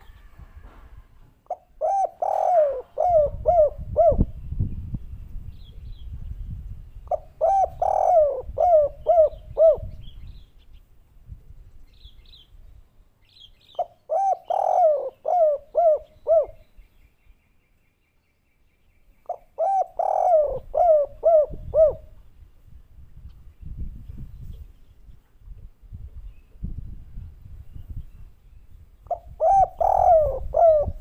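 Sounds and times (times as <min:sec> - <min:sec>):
dove cooing: 0:01.4 - 0:04.4, 0:07.1 - 0:10.1, 0:13.8 - 0:16.6, 0:19.3 - 0:22.2, 0:29.1 - 0:31.0.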